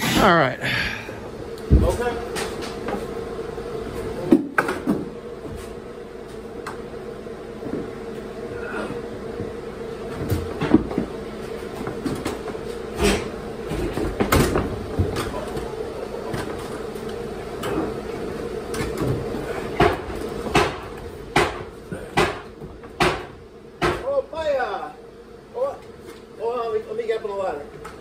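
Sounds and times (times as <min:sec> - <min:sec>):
steady hum: 0:00.0 - 0:28.0.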